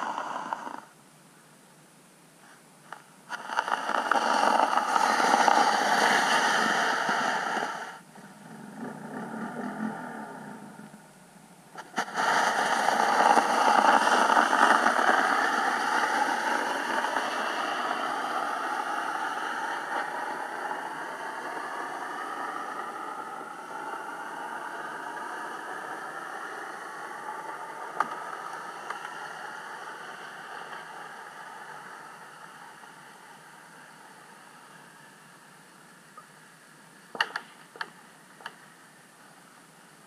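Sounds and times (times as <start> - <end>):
underwater engine hum: 0.0 - 1.0, 3.3 - 36.6
sharp click: 37.2 - 38.6.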